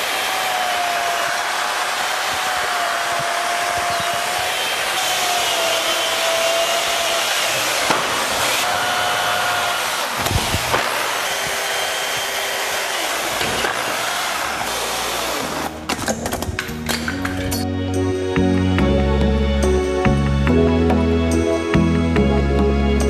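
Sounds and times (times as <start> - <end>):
small motor whirring: 0.0 - 15.8.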